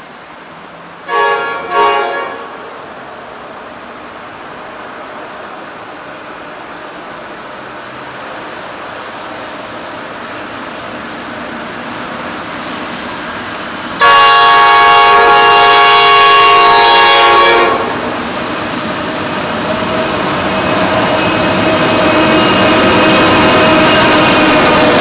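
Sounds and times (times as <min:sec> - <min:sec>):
train engine and wheel noise: 0:00.0 - 0:25.0
locomotive horn blast: 0:01.1 - 0:02.8, 0:14.0 - 0:18.0.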